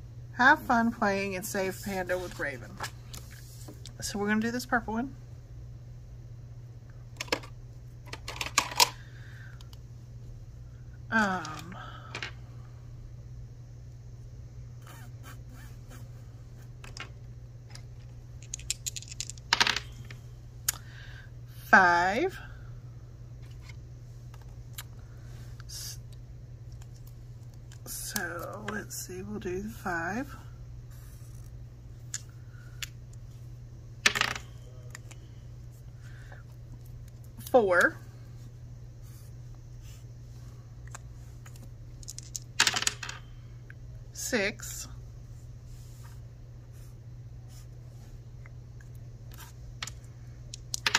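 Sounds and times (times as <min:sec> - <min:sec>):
dice rattling and clattering: 0:18.4 - 0:19.9, 0:42.0 - 0:43.2, 0:50.6 - 0:50.9.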